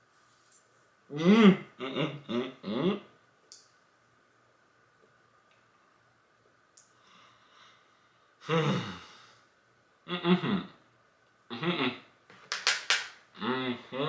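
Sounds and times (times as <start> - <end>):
man's muffled hums: 1.1 - 3.1, 8.4 - 9.3, 13.4 - 14.0.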